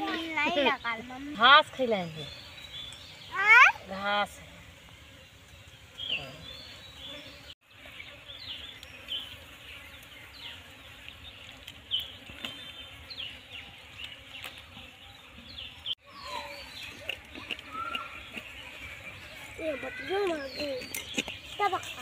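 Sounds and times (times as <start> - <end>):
insects buzzing: 0.0 - 22.0
bird chirps: 5.6 - 22.0.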